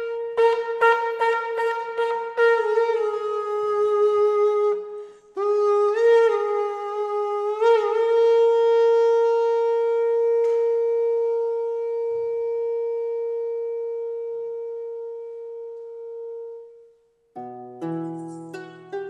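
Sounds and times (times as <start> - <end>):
shofar horn blasts: 0.0 - 3.5.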